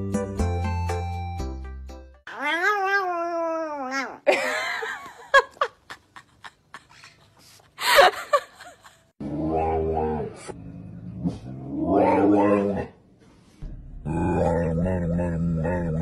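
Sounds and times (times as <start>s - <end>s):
background music: 0.0s - 2.2s.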